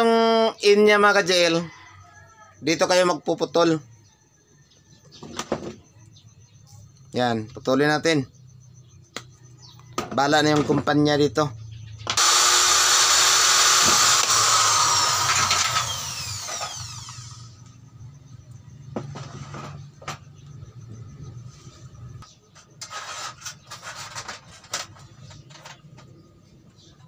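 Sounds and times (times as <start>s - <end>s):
electric power tool whining: 12.1s - 17.9s.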